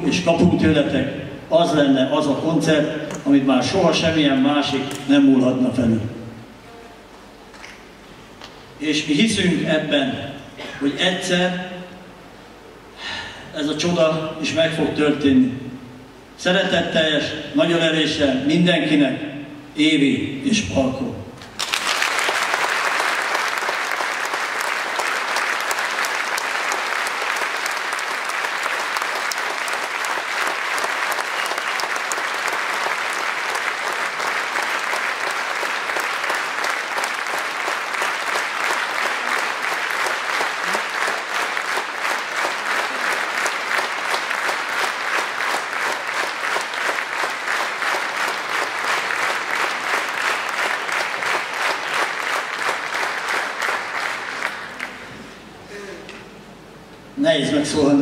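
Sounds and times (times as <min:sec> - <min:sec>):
audience applauding: 0:21.4 - 0:55.2.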